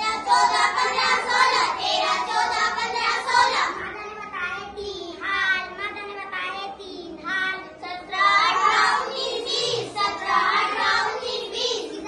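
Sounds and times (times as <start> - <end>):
children singing: 0.0 - 3.8, 8.1 - 12.0.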